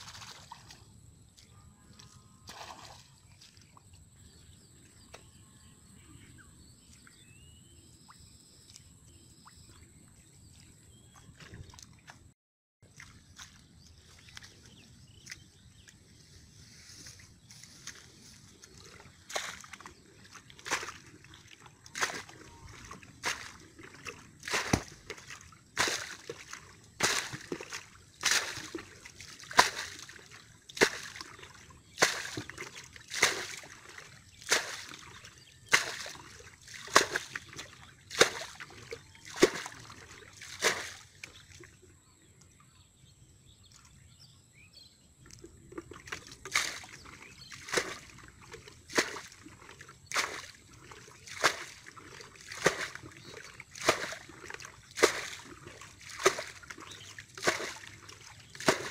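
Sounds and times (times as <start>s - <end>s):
water splashing from bucket: 0.0s - 0.9s, 2.5s - 3.2s, 18.6s - 41.8s, 45.3s - 58.9s.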